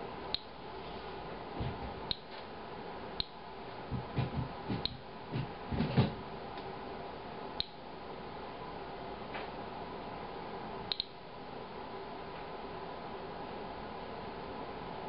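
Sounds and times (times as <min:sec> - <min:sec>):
geiger counter clicking: 0:10.9 - 0:11.2.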